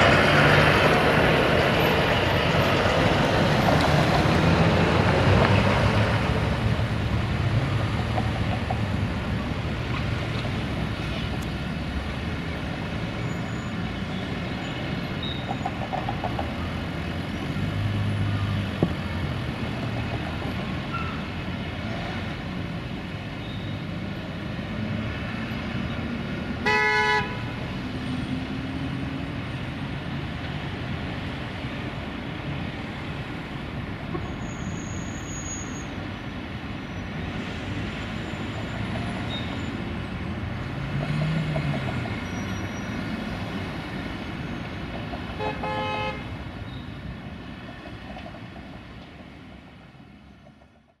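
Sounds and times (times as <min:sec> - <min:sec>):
street traffic: 0:00.0 - 0:51.0
vehicle horn toots: 0:26.6 - 0:27.4, 0:45.4 - 0:46.3.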